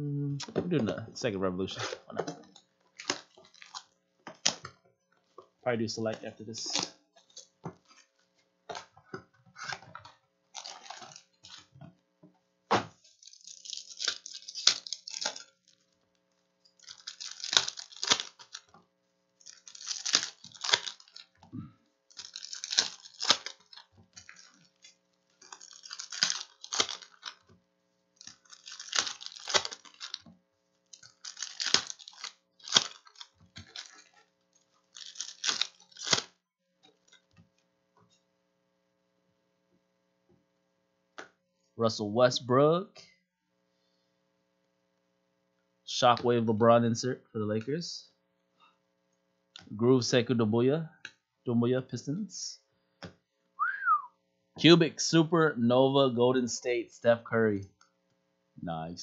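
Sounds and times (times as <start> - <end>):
foil card packs ripping open: 1.7 - 4.7, 6.5 - 8.0, 10.5 - 11.7, 13.0 - 16.0, 16.8 - 18.7, 19.3 - 21.4, 22.1 - 27.5, 28.2 - 36.4.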